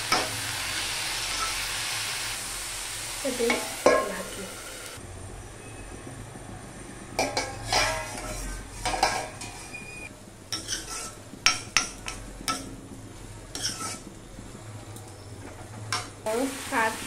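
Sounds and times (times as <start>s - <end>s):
metal lid clattering: 7.2s - 9.8s
spoon scraping and stirring: 7.4s - 9.9s, 10.5s - 12.7s, 13.5s - 14.1s.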